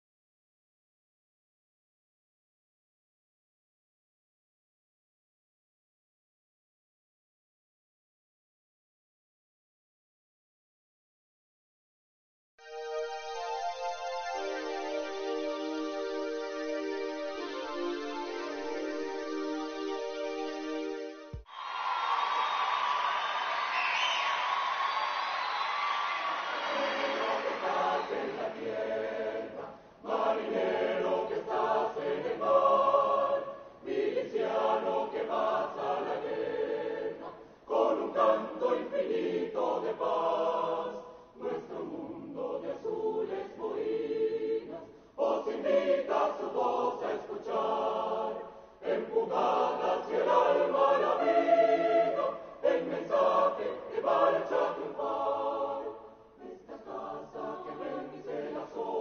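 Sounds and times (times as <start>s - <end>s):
choir singing: 14.2s - 59.0s
singers breathing: 37.4s - 37.7s, 44.9s - 45.2s, 48.5s - 48.8s.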